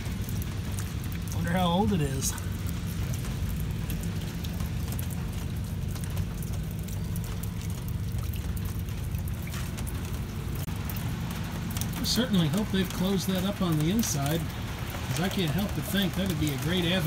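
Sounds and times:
low hum: 0.0s - 12.7s.

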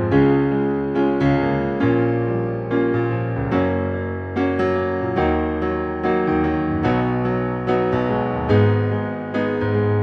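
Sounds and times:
keyboard playing piano chords: 0.0s - 10.0s.

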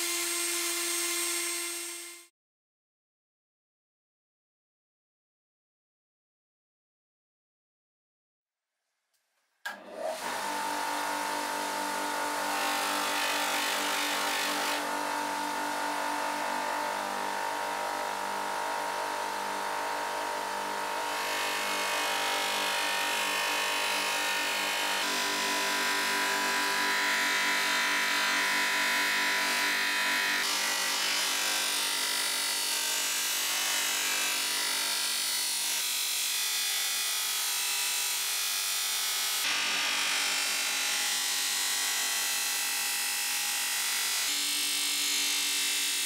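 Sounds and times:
polishing machine motor hum: 9.7s - 31.8s.

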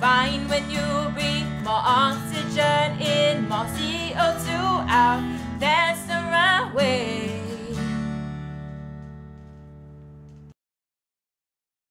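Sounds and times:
person singing: 0.0s - 8.0s
bass guitar: 0.0s - 10.5s
strummed acoustic guitar: 0.0s - 10.5s.

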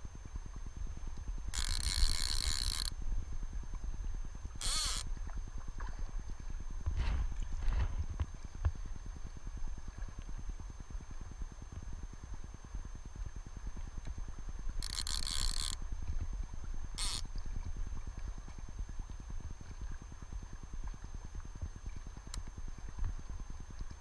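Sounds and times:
fly reel drag clicking: 1.4s - 3.0s, 4.6s - 5.1s, 14.8s - 15.8s, 17.0s - 17.4s
river current: 1.4s - 3.0s, 4.5s - 5.3s, 14.8s - 15.9s, 16.9s - 17.4s.

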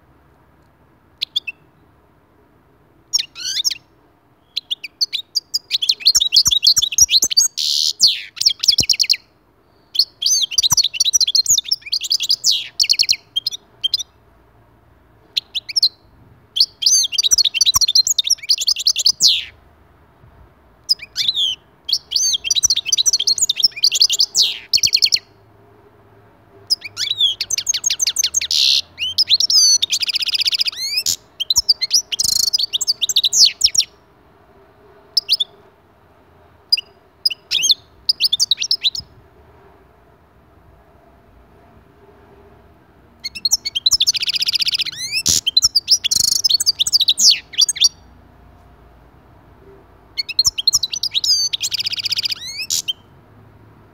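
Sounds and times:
goldfinch twittering and trilling: 50.2s - 53.0s.

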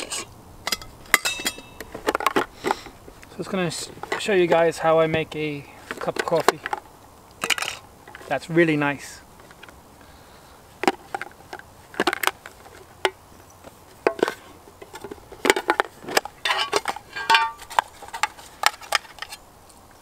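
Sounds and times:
metal tin clinks and knocks: 0.0s - 2.6s, 7.4s - 8.3s, 14.0s - 19.4s
ringing metallic clink: 0.7s - 1.8s.

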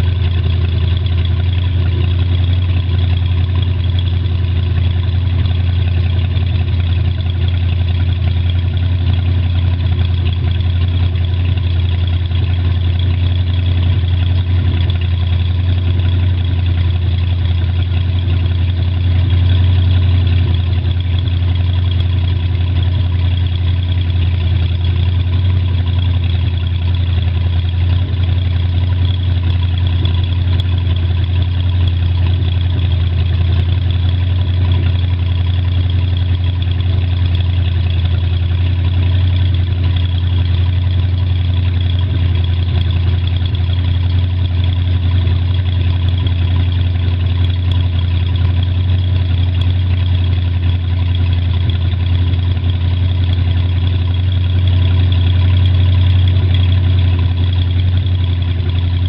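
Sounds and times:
boat engine idling: 0.0s - 59.0s.

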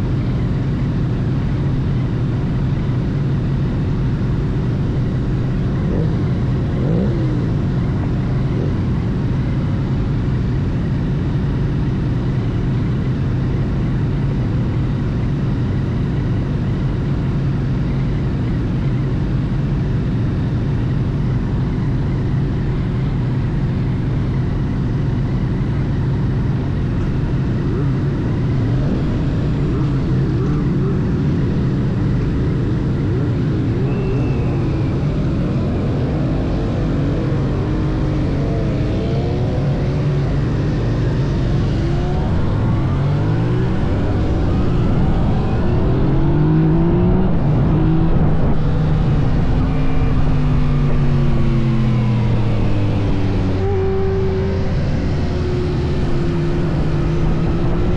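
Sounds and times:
motorcycle engine revving: 4.5s - 9.6s, 21.9s - 57.9s.

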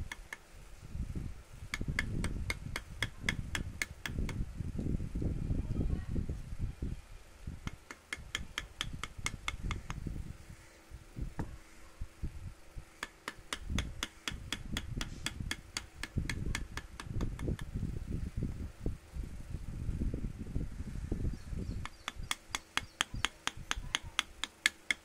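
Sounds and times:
dull low knocks and thumps: 0.0s - 5.0s, 7.5s - 10.4s, 11.2s - 11.6s, 13.0s - 18.7s
hammer tapping on chisel: 0.1s - 0.4s, 1.7s - 4.4s, 7.6s - 10.0s, 13.0s - 17.7s, 21.8s - 25.0s.

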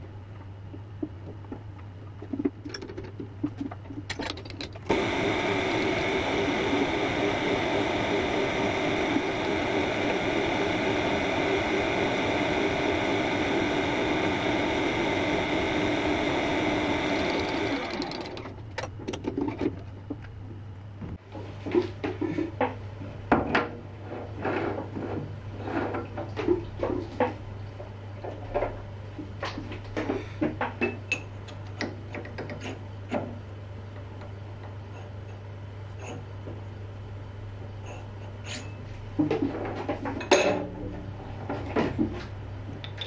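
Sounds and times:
metal handling clicks and knocks: 2.4s - 4.9s, 42.8s - 43.0s
low hum: 4.8s - 18.8s
machine drilling metal: 4.9s - 18.5s.

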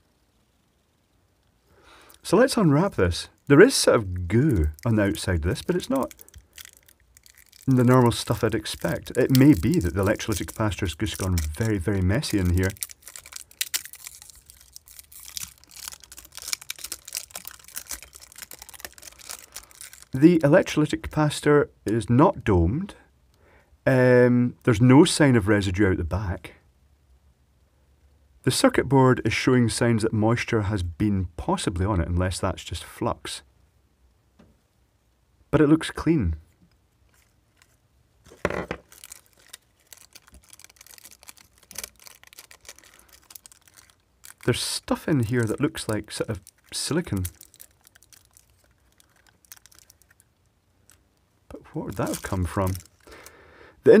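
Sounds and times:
tape peeling and crinkling: 2.1s - 20.5s, 36.6s - 53.2s.

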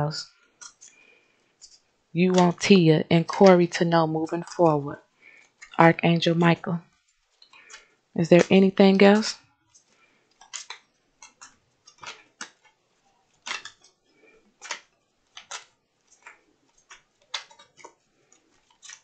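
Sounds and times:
cards being shuffled: 10.4s - 12.7s, 13.4s - 14.0s, 14.6s - 19.0s.

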